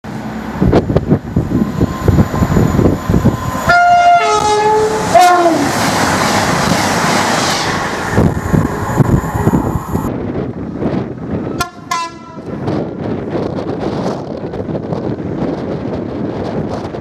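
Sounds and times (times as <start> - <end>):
rush of train noise: 0.0 - 17.0
two-tone train horn: 3.7 - 5.7, 11.6 - 12.6.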